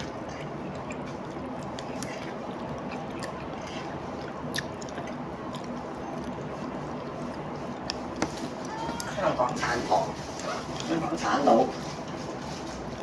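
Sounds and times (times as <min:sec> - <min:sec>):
person chewing noodles: 0:00.0 - 0:09.6.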